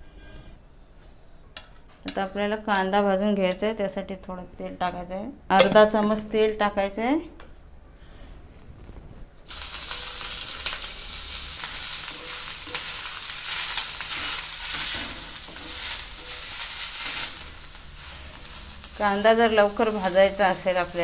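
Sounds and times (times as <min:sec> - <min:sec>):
onions sizzling in oil: 0:09.5 - 0:21.0
wooden spatula scraping pan: 0:12.0 - 0:18.6.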